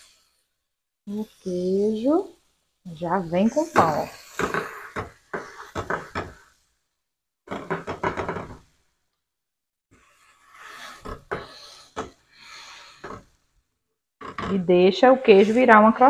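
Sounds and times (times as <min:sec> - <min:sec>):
dull knocks in a frying pan: 0:04.4 - 0:06.5, 0:07.5 - 0:08.7.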